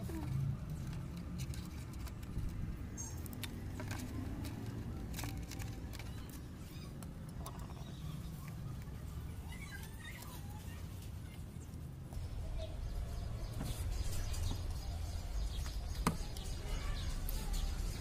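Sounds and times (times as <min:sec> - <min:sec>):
light clicks and rustles of wires: 0:00.0 - 0:07.5
low steady background rumble: 0:00.0 - 0:18.0.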